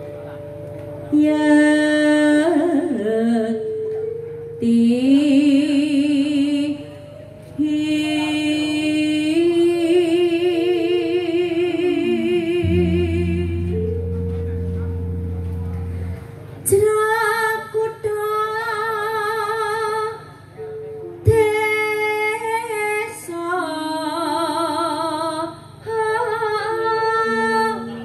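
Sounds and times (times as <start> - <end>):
woman singing with vibrato: 1.1 - 7.0, 7.6 - 14.2, 16.6 - 20.6, 21.2 - 28.0
electronic keyboard: 11.9 - 18.5.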